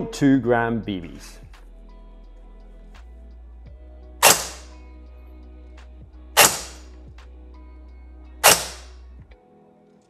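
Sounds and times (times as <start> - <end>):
background music: 0.0 - 10.0
airsoft rifle shots: 4.2 - 4.7, 6.4 - 6.8, 8.4 - 8.9.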